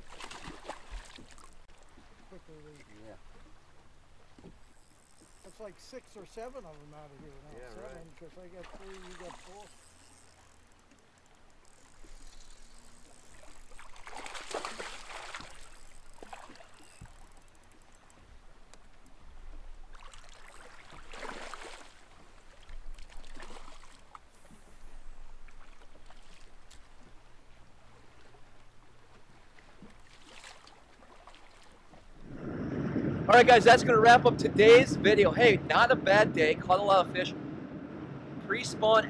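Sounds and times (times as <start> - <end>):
water splashing: 0.0 - 18.1, 18.9 - 37.2
fish thrashing at water surface: 12.1 - 17.3.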